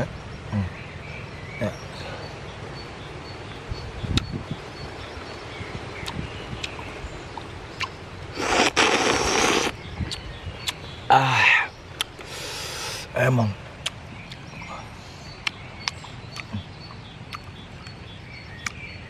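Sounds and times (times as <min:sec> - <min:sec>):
steady background hiss: 0:00.0 - 0:19.0
airy mouth noise: 0:07.8 - 0:13.2, 0:15.4 - 0:16.7.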